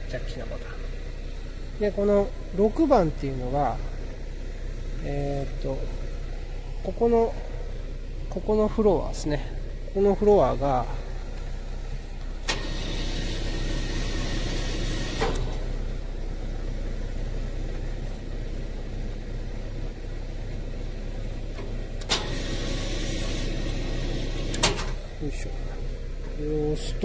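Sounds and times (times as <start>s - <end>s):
hydraulic system humming: 0.0s - 27.0s
sharp mechanical clunks: 12.4s - 12.9s, 15.0s - 15.7s, 21.6s - 22.5s, 24.4s - 25.0s.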